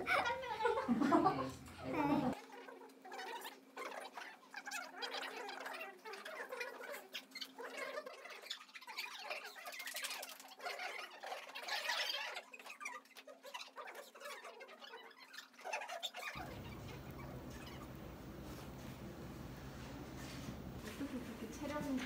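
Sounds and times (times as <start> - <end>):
faint room hum: 0.0 - 22.0.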